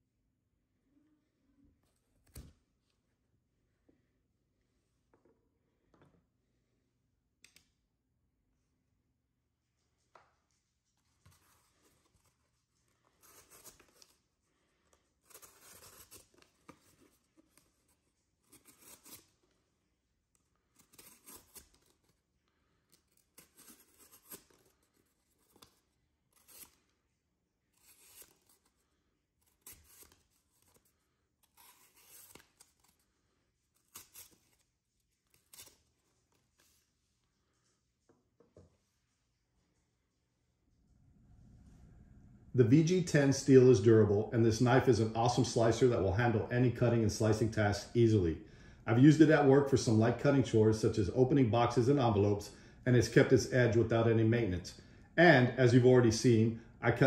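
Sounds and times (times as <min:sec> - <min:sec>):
knife cutting cardboard: 0:15.2 - 0:19.4, 0:20.7 - 0:22.2, 0:22.9 - 0:26.8, 0:27.7 - 0:28.7, 0:29.4 - 0:33.0, 0:33.7 - 0:35.9.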